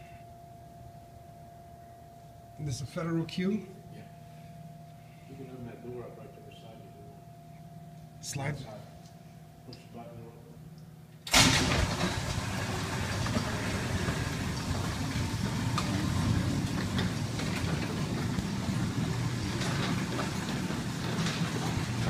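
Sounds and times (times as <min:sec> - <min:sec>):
door clicks and rattles: 0:11.3 - 0:22.0
door opener motor running: 0:11.3 - 0:22.0.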